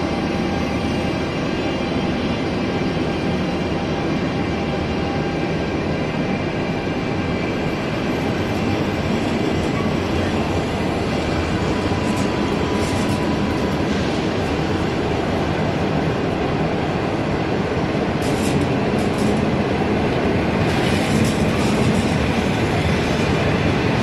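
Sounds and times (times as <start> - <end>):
train wheels rumbling on rails: 0.0 - 24.0.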